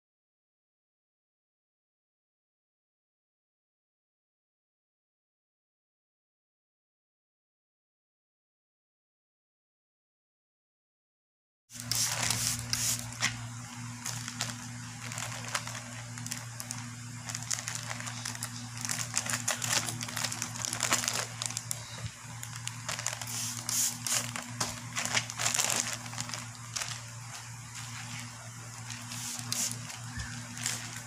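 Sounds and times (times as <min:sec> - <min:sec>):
plastic and bubble wrap crinkling: 0:11.7 - 0:31.0
steady low hum: 0:11.7 - 0:31.0.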